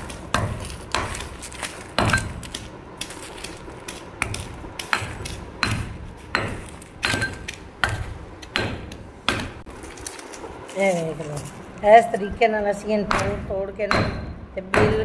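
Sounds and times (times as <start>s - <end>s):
pestle pounding salt in mortar: 0.0s - 9.7s.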